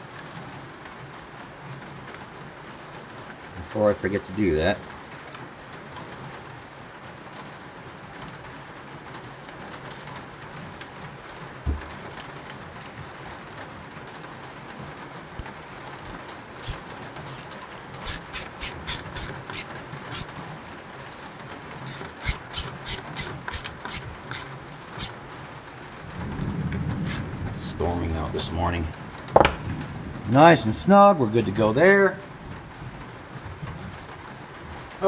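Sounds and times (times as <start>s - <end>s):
ratchet wrench clicking: 16.0s - 20.3s, 21.9s - 25.2s.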